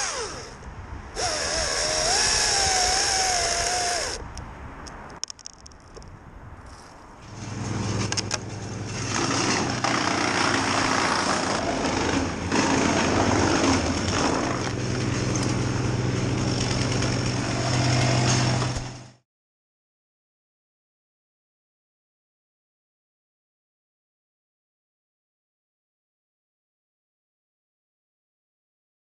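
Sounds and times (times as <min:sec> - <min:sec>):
engine running under load: 0:07.2 - 0:19.2
rushing grinding noise: 0:07.2 - 0:19.2.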